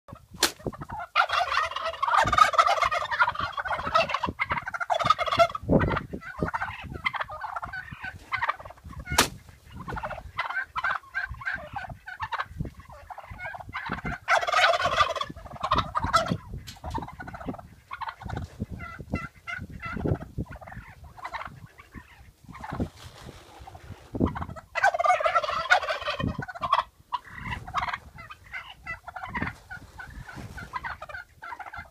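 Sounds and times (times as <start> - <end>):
turkeys gobbling: 0.1 - 31.9
sharp thumps: 0.4 - 0.7, 9.1 - 9.4.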